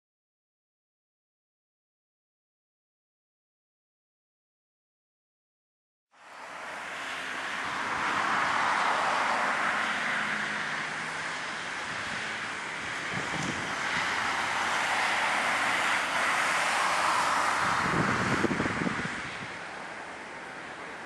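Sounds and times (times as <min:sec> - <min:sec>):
jet engines roaring: 0:07.2 - 0:21.0
wind buffeting microphone: 0:11.8 - 0:19.9.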